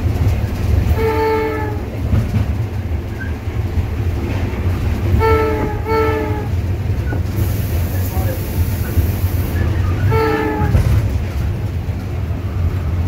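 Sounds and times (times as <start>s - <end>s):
locomotive air horn: 0.9s - 1.9s, 5.1s - 6.6s, 10.0s - 11.0s.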